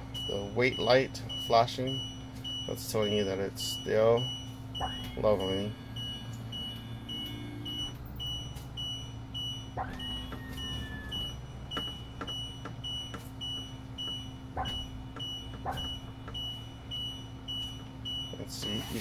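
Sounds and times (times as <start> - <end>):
steady low hum: 0.0 - 19.0
short high warning beeps: 0.1 - 19.0
knocks and creak: 9.8 - 16.6.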